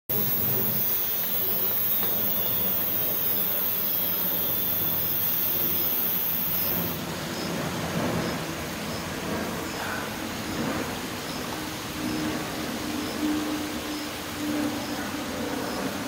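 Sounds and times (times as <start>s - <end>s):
high hiss: 0.1s - 9.0s.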